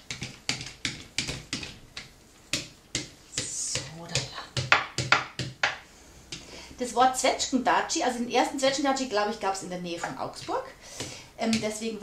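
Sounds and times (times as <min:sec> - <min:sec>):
dough roller clicking and knocking: 0:00.0 - 0:03.1.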